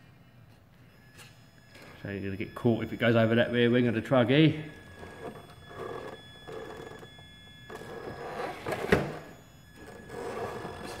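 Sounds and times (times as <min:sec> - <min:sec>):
toy car motor whirring: 0:04.7 - 0:11.0.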